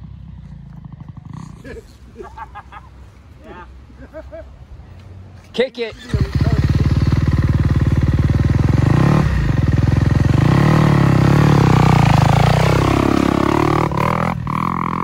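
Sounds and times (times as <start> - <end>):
motorcycle engine running: 0.0 - 1.7, 6.0 - 15.0.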